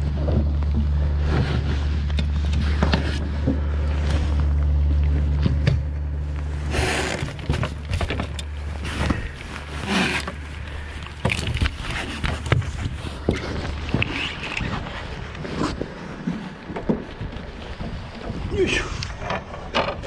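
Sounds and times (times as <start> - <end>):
boat engine humming: 0.0 - 20.0.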